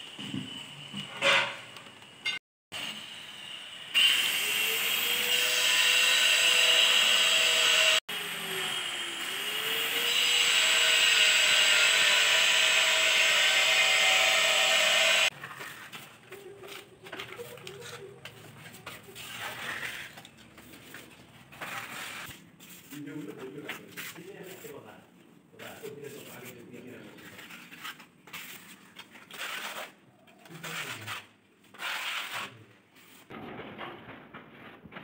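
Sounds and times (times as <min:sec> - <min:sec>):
irregular work noise: 0:00.0 - 0:35.0
power tool whining: 0:02.8 - 0:15.3.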